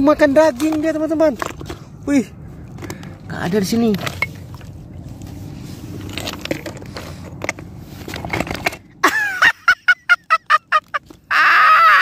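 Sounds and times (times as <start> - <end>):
stones clacking and scraping: 0.0 - 2.0, 2.7 - 9.0.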